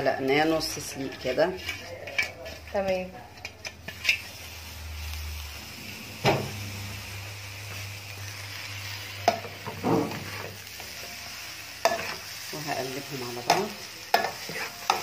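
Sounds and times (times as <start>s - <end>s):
rice sizzling in a pot: 0.0s - 15.0s
metal spoon stirring: 0.3s - 4.4s, 13.3s - 15.0s.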